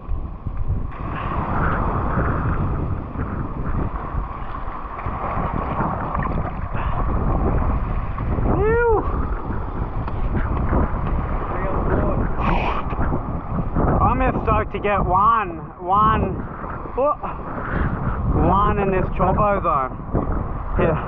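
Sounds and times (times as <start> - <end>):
sea surging against rocks: 0.0 - 21.0
wind buffeting microphone: 0.0 - 21.0.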